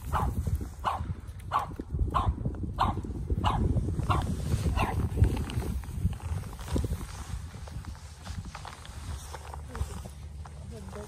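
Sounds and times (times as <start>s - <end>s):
dog barking: 0.1s - 5.0s.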